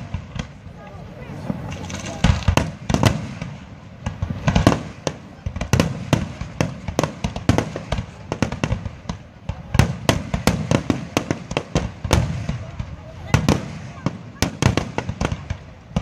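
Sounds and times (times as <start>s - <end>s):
firework shells bursting: 0.0s - 9.3s.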